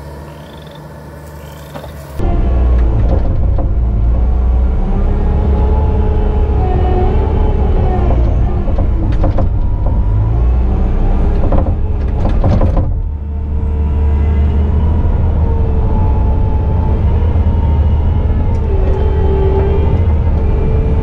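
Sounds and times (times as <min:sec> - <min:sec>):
machine rattling and clanking: 0:00.0 - 0:05.6, 0:07.4 - 0:13.2
diesel engine under load: 0:00.0 - 0:21.0
knocks: 0:08.0 - 0:10.3, 0:11.2 - 0:13.1.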